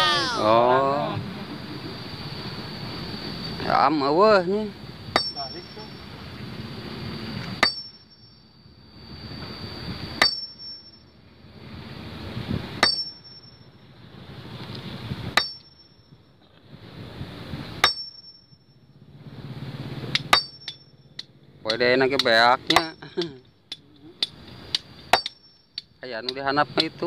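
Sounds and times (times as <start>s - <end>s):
axe striking boulder: 7.6s - 8.0s, 10.2s - 10.6s, 12.8s - 13.2s, 15.4s - 15.6s, 17.8s - 18.2s, 20.1s - 20.8s.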